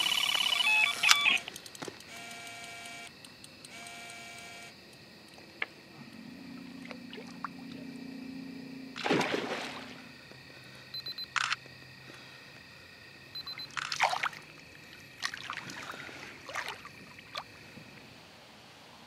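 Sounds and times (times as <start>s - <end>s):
bite alarm beeps and tones: 0.0s - 1.4s, 11.0s - 11.6s, 13.4s - 13.8s.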